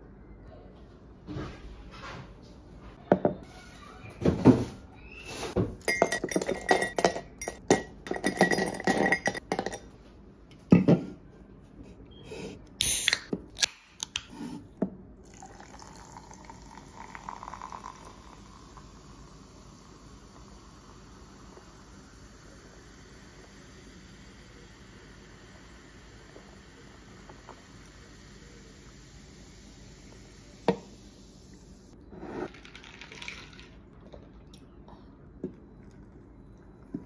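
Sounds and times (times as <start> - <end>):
soda can opening hiss: 12.8 - 13.8
soda pouring and fizzing: 15.2 - 31.4, 32.2 - 34.2
ice cubes clinking into glass: 32.5 - 33.8.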